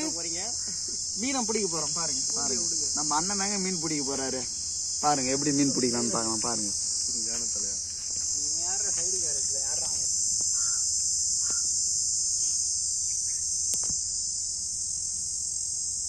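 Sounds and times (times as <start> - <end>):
person speaking: 0.0 - 7.8
high-pitched insect chorus: 0.0 - 16.0
sharp click: 13.7 - 14.0.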